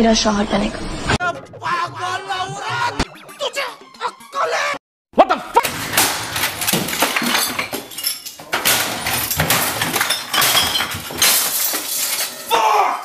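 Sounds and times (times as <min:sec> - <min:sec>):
man yelling: 0:01.2 - 0:05.7, 0:12.5 - 0:13.0
crashing and clattering: 0:05.6 - 0:12.6
glass bottles clinking: 0:05.6 - 0:12.6.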